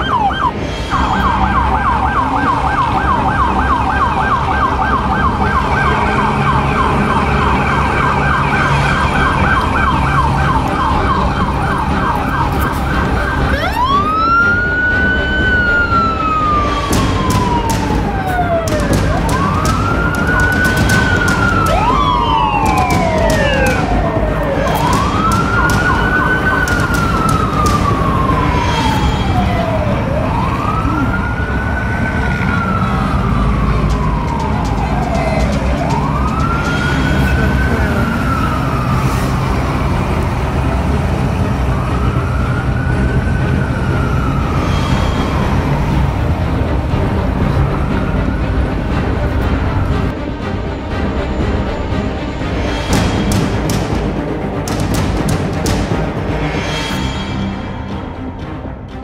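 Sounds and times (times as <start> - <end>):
siren yelping: 0.0 - 40.6, 41.4 - 46.3
second siren: 0.0 - 48.8
siren wailing: 0.0 - 50.4
street traffic: 0.0 - 59.0.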